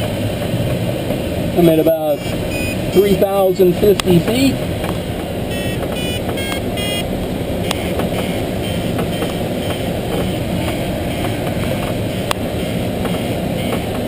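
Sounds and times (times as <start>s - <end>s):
airflow rushing over glider canopy: 0.0s - 6.0s
faint short beeps: 2.5s - 2.8s, 5.5s - 7.0s.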